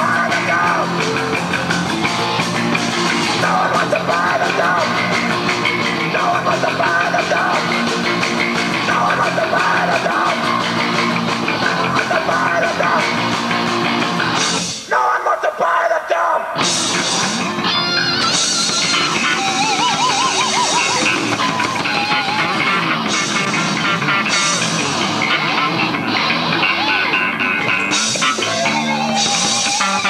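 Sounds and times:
person singing: 0.0s - 1.4s, 3.2s - 8.2s, 8.8s - 10.9s, 11.5s - 13.3s
live rock band playing: 0.0s - 14.9s, 16.6s - 30.0s.

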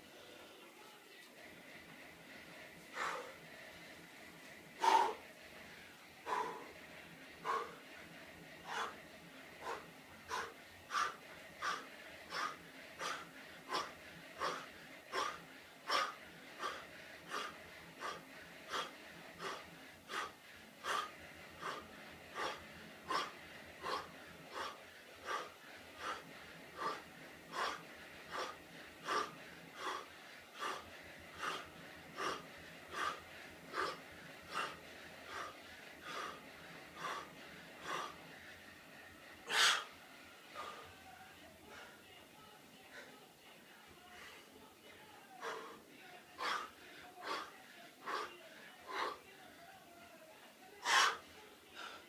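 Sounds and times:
man breathing hard: 2.4s - 41.0s, 41.6s - 42.1s, 44.1s - 49.4s, 50.8s - 52.0s
loud gasp: 50.8s - 51.2s.

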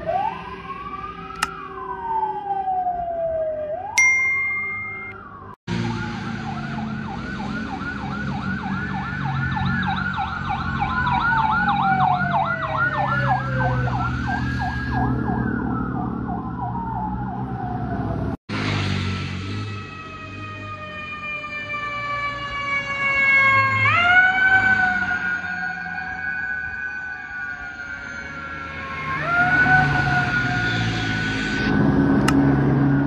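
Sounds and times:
sirens wailing: 0.0s - 4.0s, 5.1s - 18.4s, 19.5s - 33.0s
fast yelp siren: 5.2s - 17.9s, 20.0s - 31.7s.

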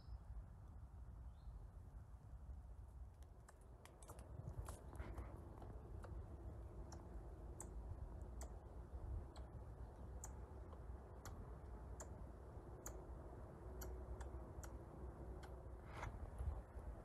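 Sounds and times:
low steady rumble: 0.0s - 17.0s
squirrel clicking: 3.1s - 15.8s.

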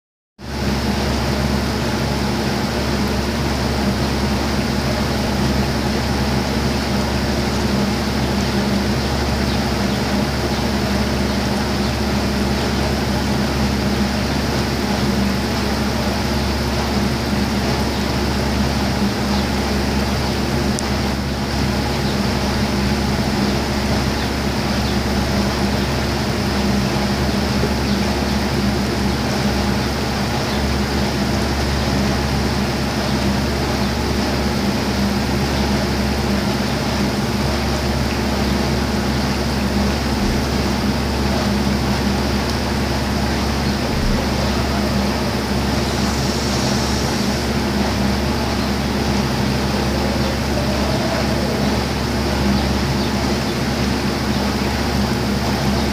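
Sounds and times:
steady mechanical hum: 0.4s - 55.9s
even rushing noise: 43.3s - 52.0s.

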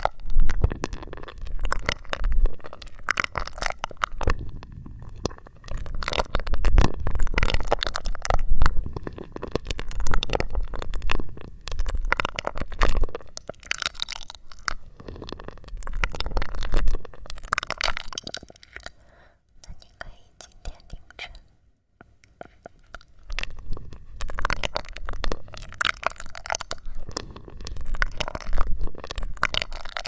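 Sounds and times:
slurping through a straw: 0.0s - 21.4s, 22.4s - 30.0s
low rumble: 4.2s - 7.4s.

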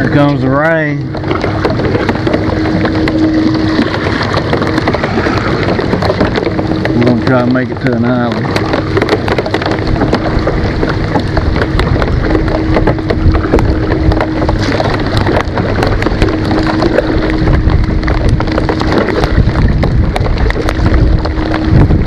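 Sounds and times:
heavy rain on water: 0.0s - 22.0s
low rumble: 0.0s - 22.0s
raindrops hitting close: 0.0s - 22.0s.

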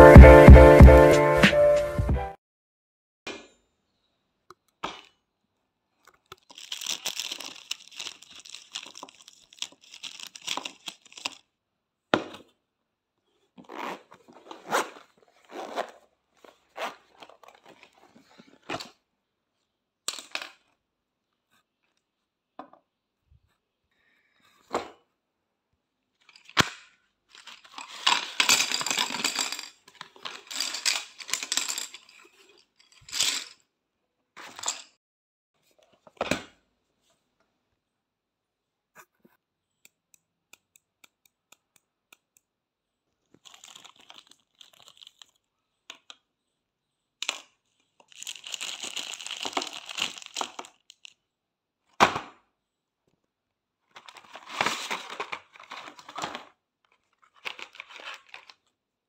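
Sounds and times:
rustling and scraping: 13.5s - 19.0s.

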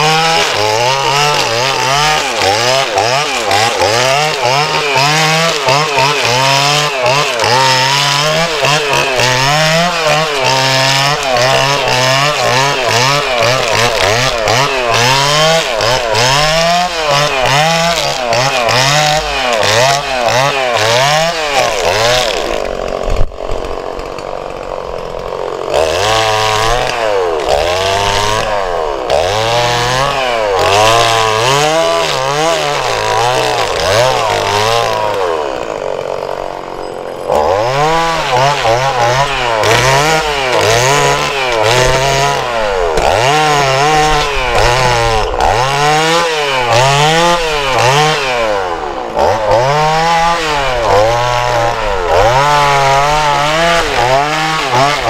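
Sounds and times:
chainsaw revving: 0.0s - 55.0s.

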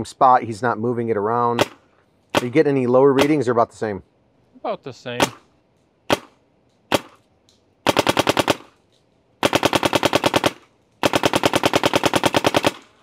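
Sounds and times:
paintball marker firing: 1.6s - 3.4s, 6.1s - 7.2s.

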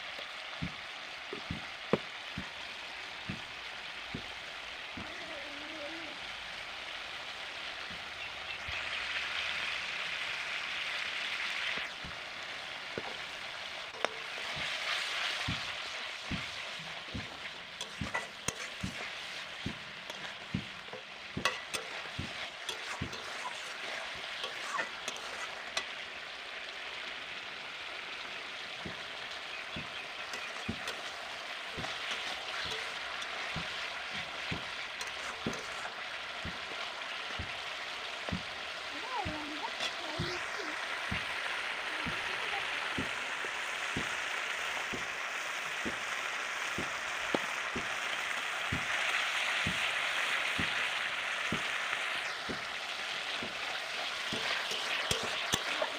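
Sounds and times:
paste sizzling in oil: 0.0s - 55.9s
metal spatula scraping pan: 16.3s - 26.2s, 28.8s - 37.6s, 53.3s - 55.9s.

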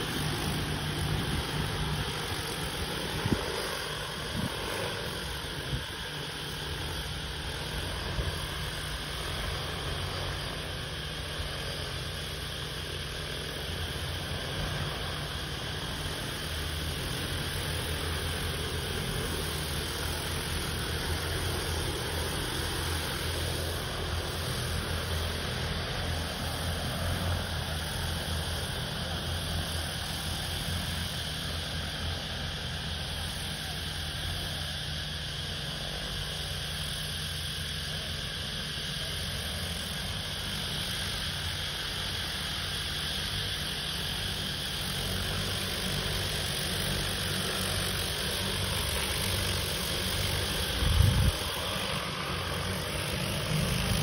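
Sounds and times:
drone rotors droning: 0.0s - 54.0s
wind rumbling on microphone: 0.3s - 6.2s, 50.6s - 52.0s.

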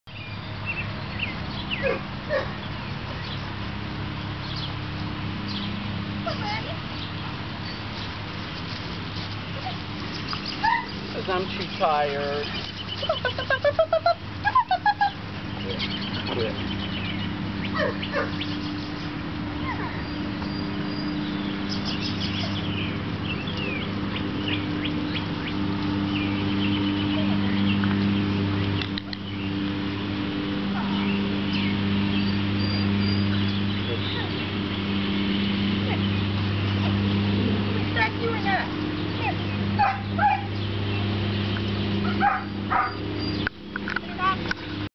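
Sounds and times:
birds chirping: 0.0s - 44.9s
steady low hum: 0.1s - 44.9s
young dog yipping and whining: 1.8s - 2.6s, 10.6s - 11.0s, 17.7s - 18.4s, 19.6s - 20.2s, 39.8s - 40.5s, 42.1s - 43.4s.

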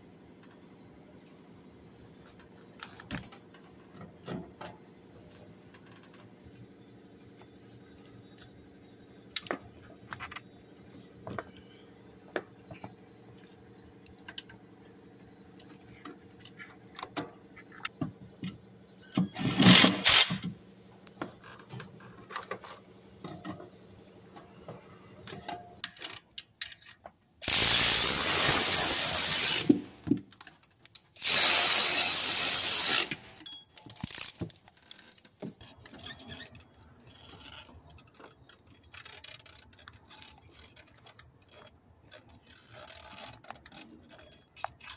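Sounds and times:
cordless power ratchet running: 19.4s - 20.4s, 27.4s - 29.8s, 31.2s - 33.2s
clicks and clanks of tools: 25.2s - 27.2s, 33.0s - 36.0s.

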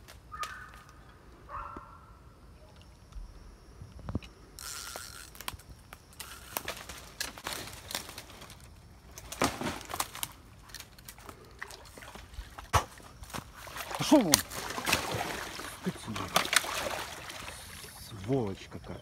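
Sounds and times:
water splashing and crackling: 4.6s - 18.7s.

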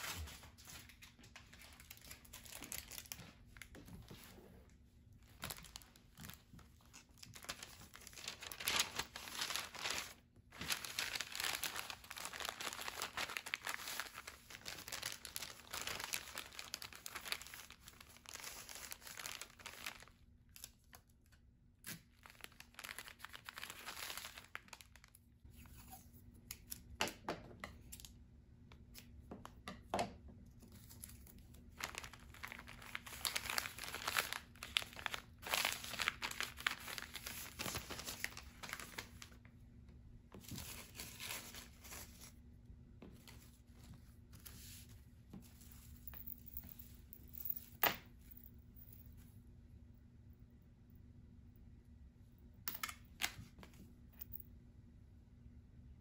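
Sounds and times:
paper bags rustling and crinkling: 0.0s - 4.4s, 5.2s - 20.2s, 22.2s - 25.1s, 30.7s - 39.4s, 40.4s - 42.4s.

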